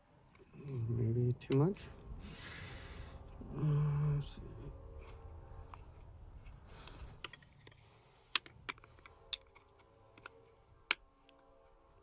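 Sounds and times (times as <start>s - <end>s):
plastic clicks and snaps: 7.2s - 11.5s.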